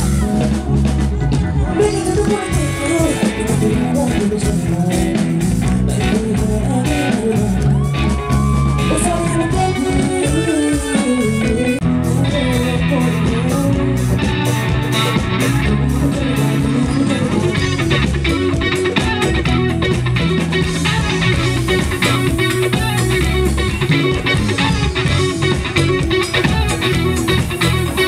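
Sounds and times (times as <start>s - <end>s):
bass guitar: 0.0s - 28.0s
electric guitar: 0.0s - 28.0s
man singing into microphone: 1.6s - 14.4s, 15.6s - 17.8s.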